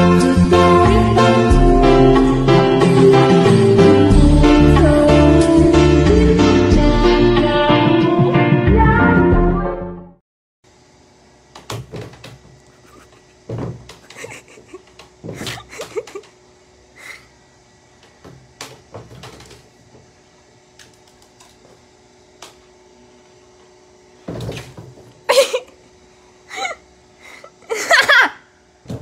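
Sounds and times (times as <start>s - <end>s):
knocks on wooden door: 13.5s - 13.9s.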